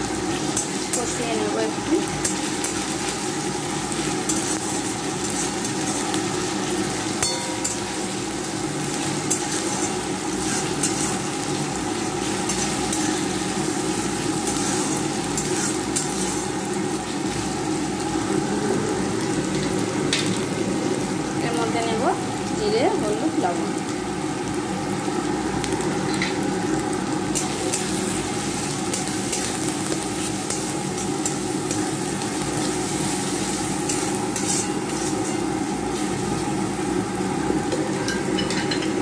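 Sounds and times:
food sizzling in hot oil: 0.0s - 39.0s.

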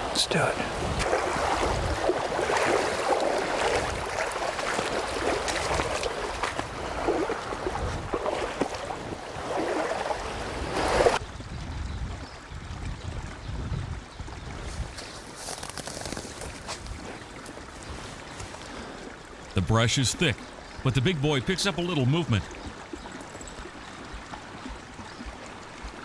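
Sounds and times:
river water rushing: 1.0s - 7.6s, 17.2s - 26.0s
boots splashing through water: 1.0s - 11.2s.

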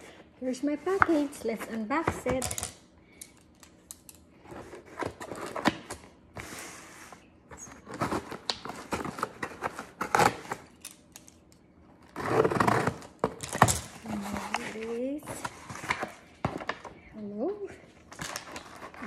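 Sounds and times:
scissors cutting cardboard tape: 12.2s - 14.9s.

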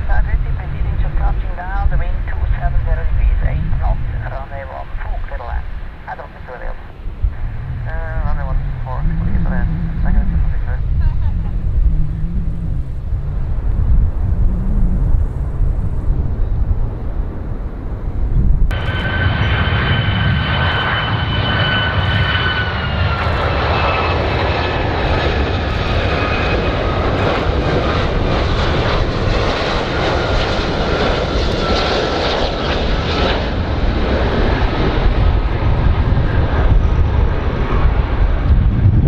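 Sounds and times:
airliner engines whining: 0.0s - 39.0s
low rumble: 0.0s - 39.0s.

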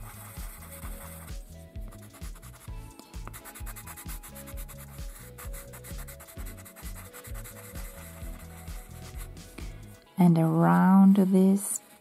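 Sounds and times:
pencil scratching on paper: 0.0s - 9.4s
soft background music: 0.0s - 12.0s.

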